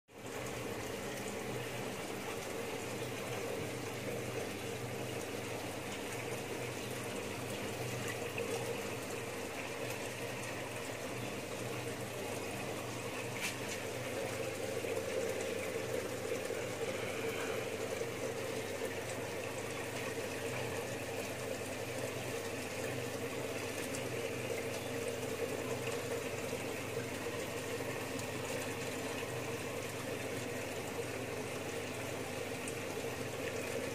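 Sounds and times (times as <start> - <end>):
water pouring from a hose: 12.7 - 24.7.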